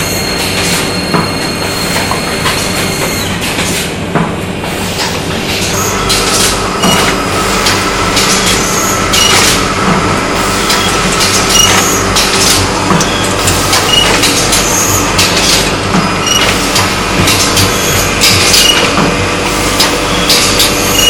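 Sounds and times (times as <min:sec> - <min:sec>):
low machine hum: 0:04.0 - 0:21.0
sharp machine clacks: 0:05.0 - 0:21.0.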